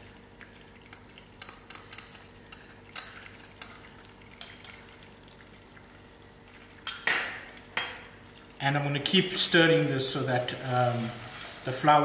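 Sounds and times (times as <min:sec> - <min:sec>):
metal spoon clinking on glass bowl: 0:00.9 - 0:04.8.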